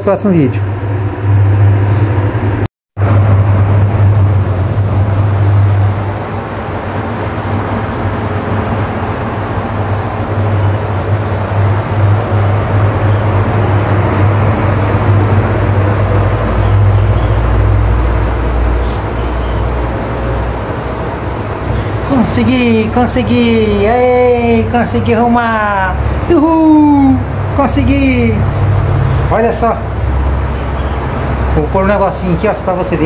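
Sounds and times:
electric fan airflow: 0.0 - 33.0
low rumble: 0.6 - 27.6.

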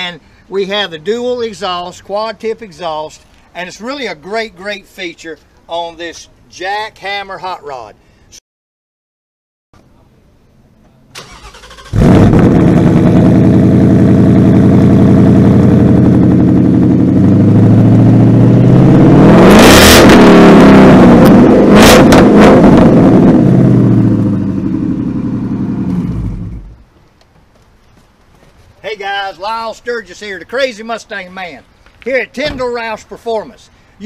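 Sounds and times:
car engine revving: 11.2 - 26.8
exhaust cracks: 11.2 - 27.4.

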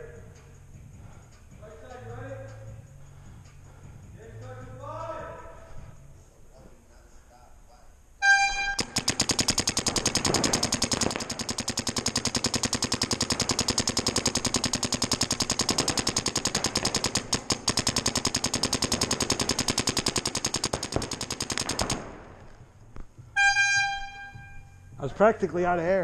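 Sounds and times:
paintball marker firing rapidly: 8.3 - 23.1.

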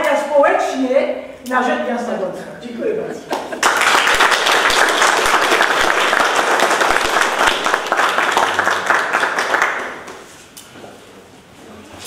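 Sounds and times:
crowd applauding: 3.4 - 10.2.

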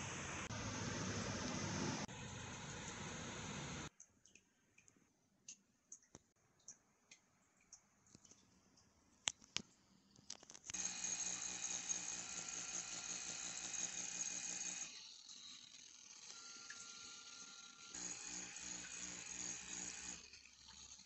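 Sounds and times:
massager motors whirring: 10.7 - 21.0.

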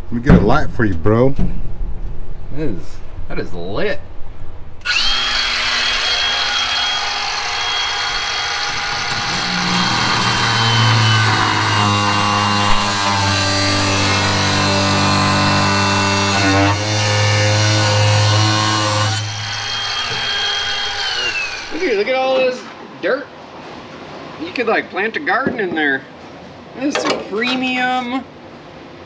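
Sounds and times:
angle grinder cutting sheet steel: 4.8 - 22.0.

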